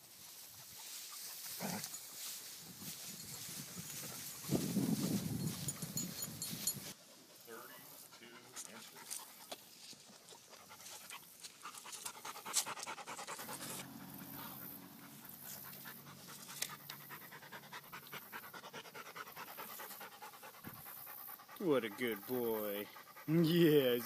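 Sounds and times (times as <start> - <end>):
dog panting: 3.3 - 24.0.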